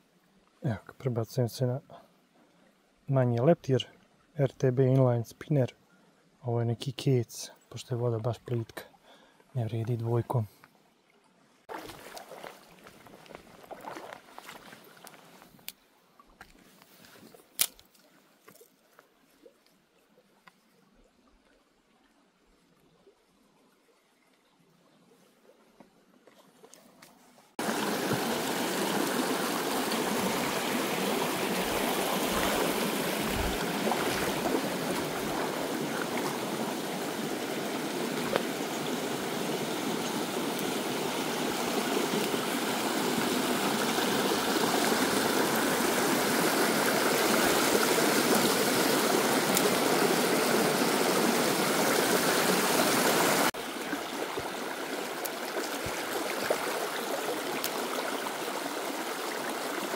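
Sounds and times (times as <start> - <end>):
shallow stream trickling: 0.0 - 59.9.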